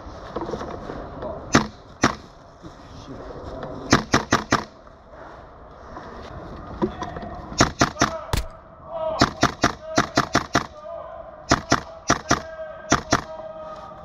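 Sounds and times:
airsoft guns firing: 0:03.9 - 0:04.8, 0:07.6 - 0:08.6, 0:09.2 - 0:10.8, 0:11.5 - 0:13.4.

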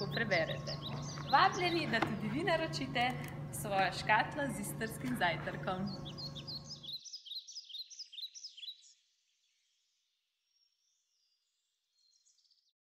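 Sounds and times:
small bird chirping: 0:00.0 - 0:02.5, 0:05.6 - 0:09.8.

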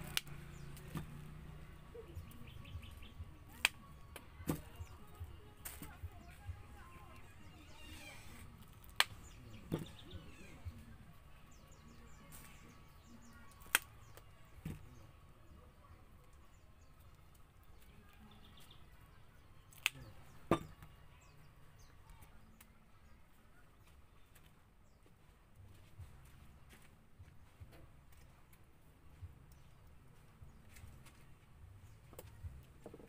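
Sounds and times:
ears of corn cracking: 0:00.0 - 0:01.2, 0:02.3 - 0:06.3, 0:07.0 - 0:10.6, 0:12.3 - 0:14.9, 0:19.6 - 0:20.3.

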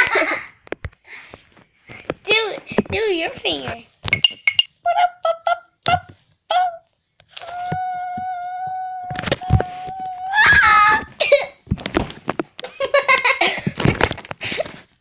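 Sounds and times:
girls squealing: 0:07.5 - 0:11.1
girls laughing and shrieking: 0:10.3 - 0:11.1.

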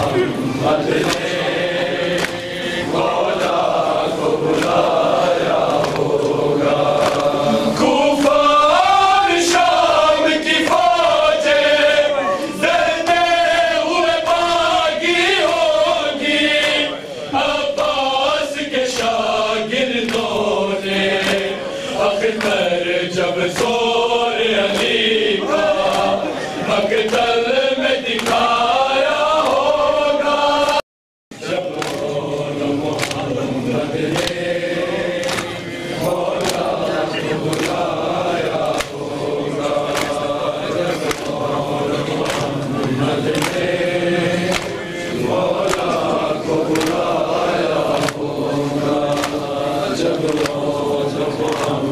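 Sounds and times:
men chanting call and response: 0:00.0 - 0:51.9
hands slapping chests: 0:00.9 - 0:01.5, 0:02.1 - 0:02.6, 0:04.4 - 0:07.5, 0:20.0 - 0:20.4, 0:21.1 - 0:21.5, 0:22.3 - 0:22.7, 0:23.4 - 0:23.8, 0:24.7 - 0:25.0, 0:25.8 - 0:26.2, 0:26.9 - 0:27.3, 0:28.1 - 0:28.6, 0:31.5 - 0:32.2, 0:32.8 - 0:33.4, 0:34.0 - 0:34.5, 0:35.1 - 0:36.8, 0:37.4 - 0:45.0, 0:45.6 - 0:48.4, 0:49.0 - 0:51.9.

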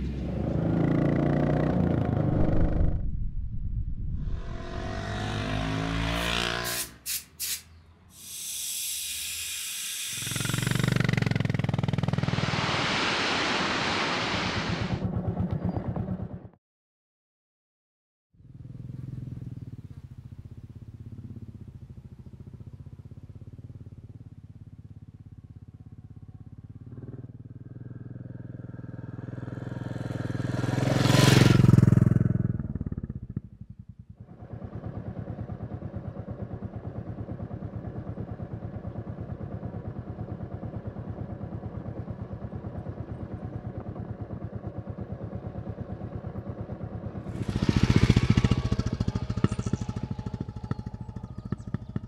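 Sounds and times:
motorcycle engine passing: 0:00.0 - 0:07.0, 0:10.2 - 0:16.6, 0:18.4 - 0:52.0.

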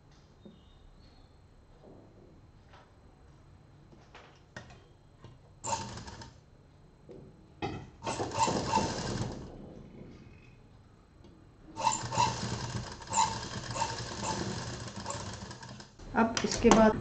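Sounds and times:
sewing machine stitching: 0:05.6 - 0:06.4, 0:08.0 - 0:09.5, 0:11.8 - 0:16.0.

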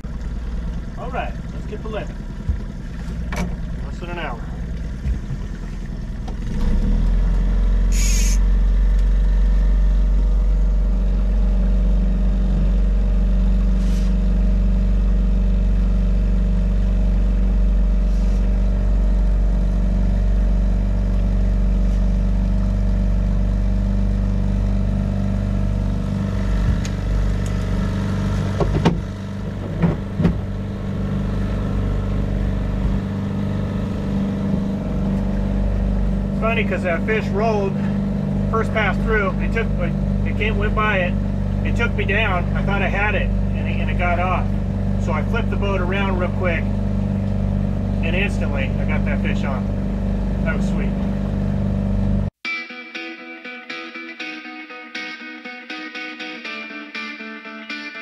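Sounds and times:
boat motor humming: 0:00.0 - 0:52.4
sharp knocks: 0:28.6 - 0:30.5.

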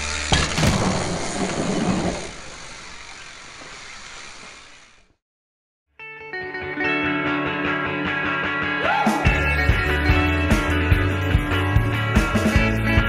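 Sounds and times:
bike rolling over dirt: 0:00.0 - 0:05.2
bike landing with a knock: 0:00.3 - 0:02.4
rock music: 0:06.0 - 0:13.0.

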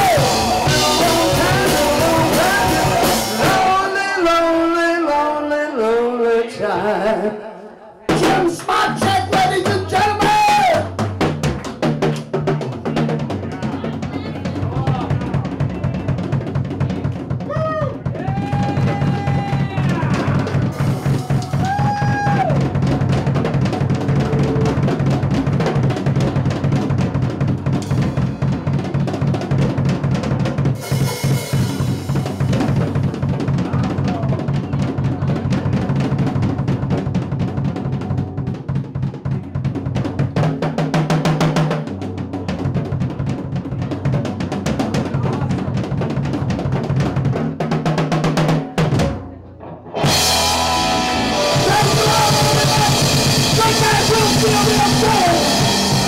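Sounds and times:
bass drum strokes: 0:00.0 - 0:03.9, 0:08.1 - 0:56.0
cymbal crashes: 0:30.8 - 0:32.6.

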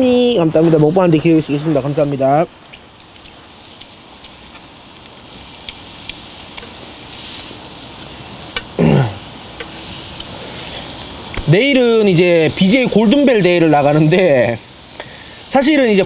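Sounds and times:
beef sizzling with small pops: 0:00.0 - 0:16.0
person murmuring: 0:08.8 - 0:09.2.

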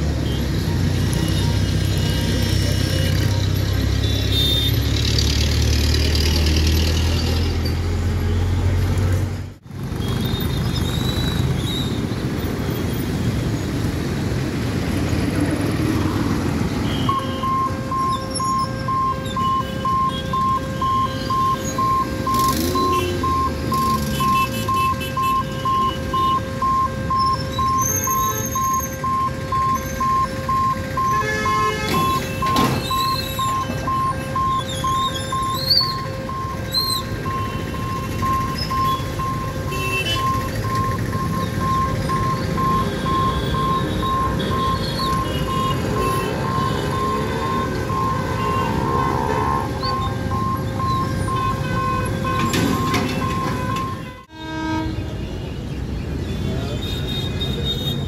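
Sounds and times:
road traffic passing: 0:00.0 - 0:58.0
level crossing alarm beeping: 0:16.8 - 0:54.3.

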